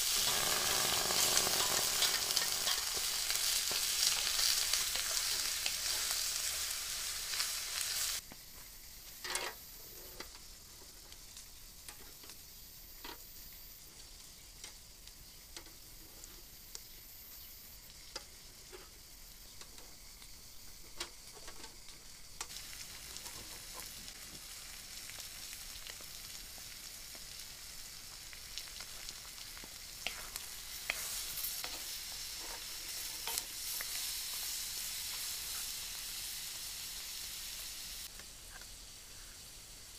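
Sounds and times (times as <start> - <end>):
liver sizzling in a pan: 0.0 - 39.9
metal skewers clicking on grill: 0.1 - 6.1, 14.6 - 14.8, 29.6 - 34.0.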